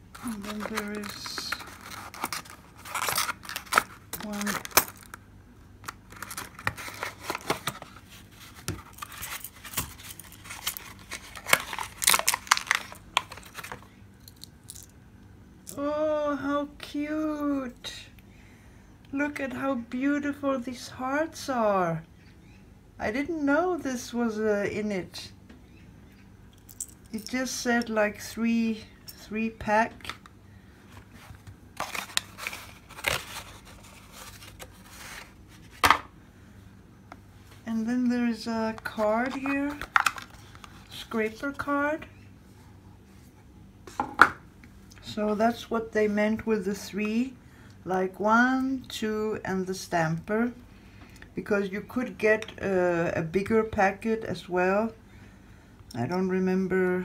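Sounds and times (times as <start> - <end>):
hands handling plastic packaging: 0.0 - 14.9, 30.0 - 36.1, 38.8 - 40.9.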